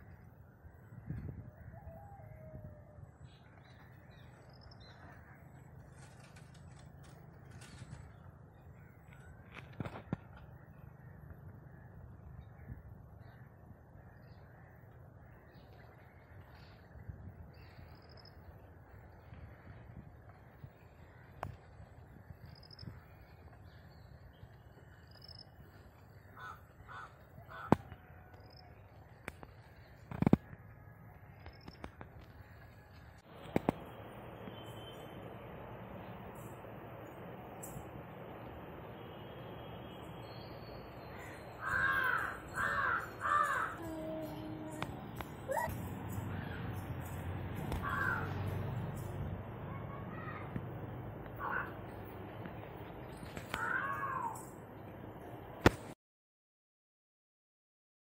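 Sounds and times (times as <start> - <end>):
distant bird calls: 0.0 - 55.7
crow cawing: 26.2 - 27.9, 41.1 - 44.8, 47.7 - 48.4, 51.4 - 51.8, 53.6 - 54.4
steady low rumble: 32.2 - 41.6.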